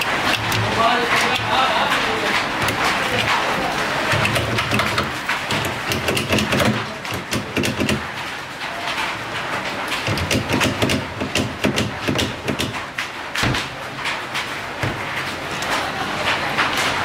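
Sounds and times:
tool knocking on plastic: 4.1s - 8.2s, 10.0s - 13.7s.

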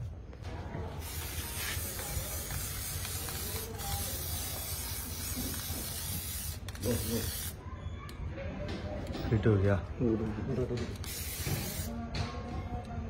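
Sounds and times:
spray-paint can hissing: 1.0s - 7.6s, 11.0s - 11.9s.

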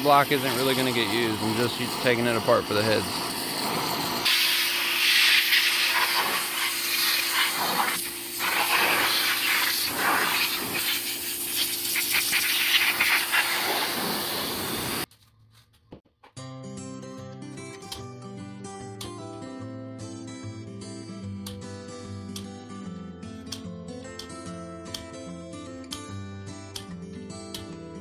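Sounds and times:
music: 0.0s - 3.9s, 16.1s - 28.0s
pressure washer hum: 0.0s - 15.1s
pressure washer water hiss: 0.0s - 15.1s.

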